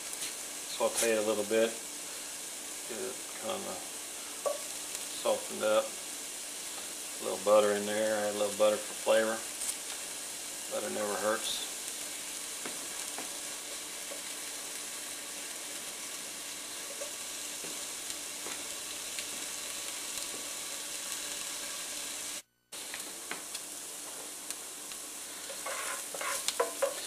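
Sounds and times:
onions sizzling in a skillet: 0.0s - 27.0s
spoon stirring onions: 11.7s - 20.5s, 24.0s - 27.0s.

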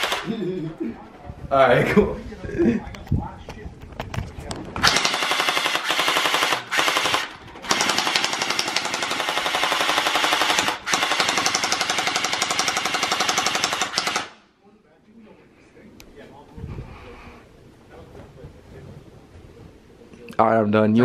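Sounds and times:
gel blaster firing full-auto: 0.0s - 0.3s, 4.8s - 14.4s.

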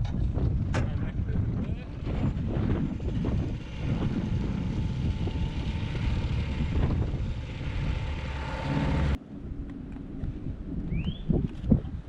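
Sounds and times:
outboard motor running: 1.7s - 9.2s.

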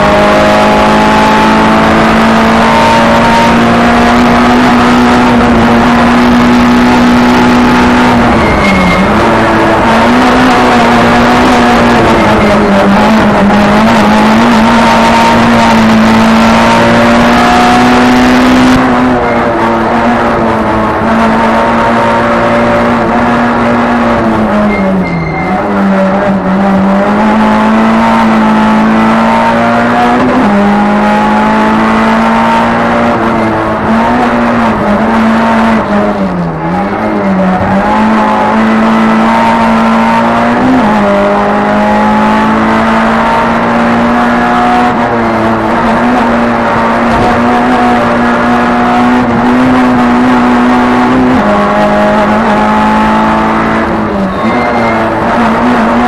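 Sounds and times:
race car engine at high revs: 0.0s - 56.0s.

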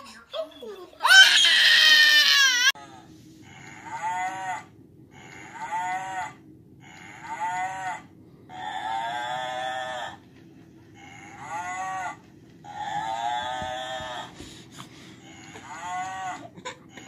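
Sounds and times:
steady low hum: 2.5s - 17.0s.

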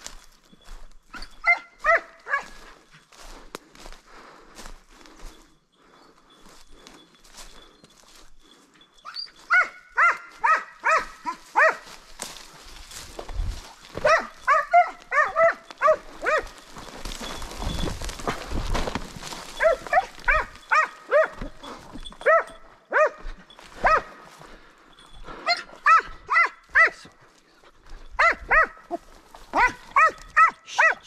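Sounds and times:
hound yelping barks: 1.1s - 2.7s, 9.0s - 12.0s, 13.9s - 16.8s, 19.6s - 24.2s, 25.4s - 27.1s, 28.2s - 31.0s
rustling noise: 11.4s - 22.4s.

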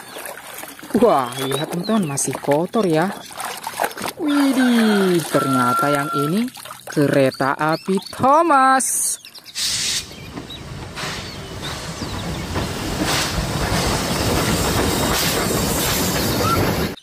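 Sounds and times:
steam locomotive rumble: 9.6s - 17.0s
steam hissing: 10.9s - 16.4s.

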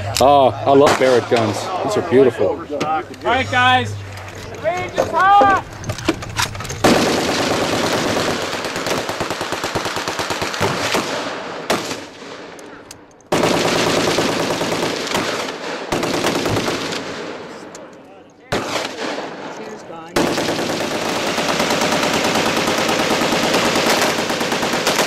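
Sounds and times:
machine gun firing automatic: 6.8s - 12.2s, 13.3s - 17.4s, 20.2s - 25.0s.

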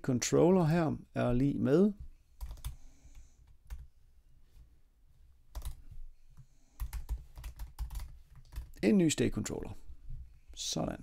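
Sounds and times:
computer keyboard typing: 2.4s - 2.8s, 3.4s - 3.9s, 5.5s - 5.8s, 6.8s - 8.8s.

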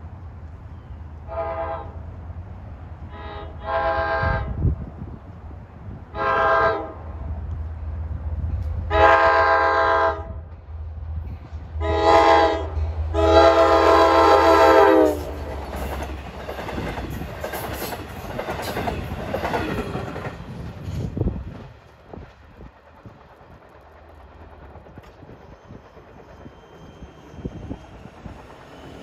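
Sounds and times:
train horn blasts: 1.3s - 2.0s, 3.1s - 4.6s, 6.1s - 7.1s, 8.9s - 10.5s, 11.8s - 15.4s
wheels clacking over rail joints: 13.9s - 29.0s.

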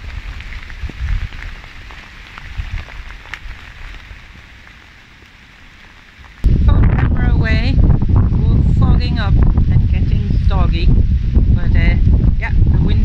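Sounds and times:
steady rain falling: 0.0s - 10.1s
low rumble: 6.4s - 13.0s.

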